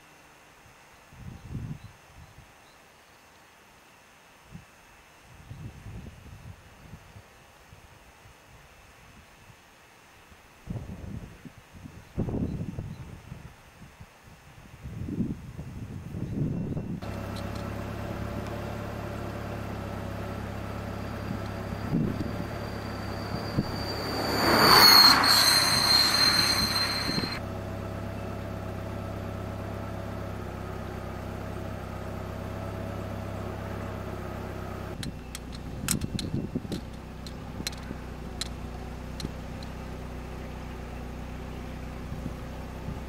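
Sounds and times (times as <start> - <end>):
steady low hum: 14.8 - 43.0
vehicle passing with high whine: 17.0 - 43.0.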